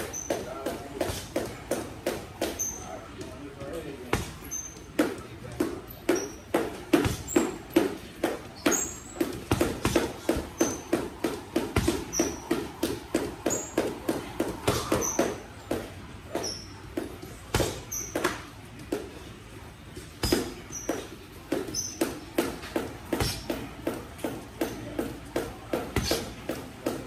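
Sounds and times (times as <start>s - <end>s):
punches thudding on heavy bag: 4.1s - 4.4s, 6.6s - 15.4s, 17.5s - 18.4s, 21.6s - 23.7s, 25.8s - 26.6s
high squeaks: 4.4s - 4.9s.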